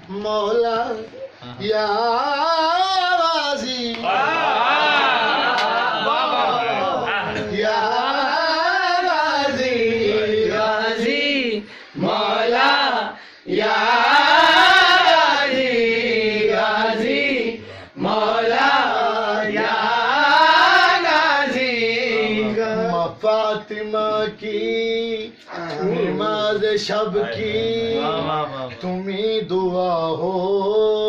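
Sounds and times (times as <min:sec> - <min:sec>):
man chanting: 0:22.0 - 0:24.4, 0:25.0 - 0:31.0.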